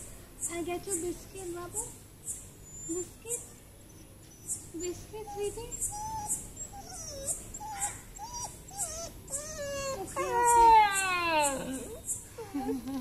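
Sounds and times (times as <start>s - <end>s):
dog whining and whimpering: 2.6s - 13.0s.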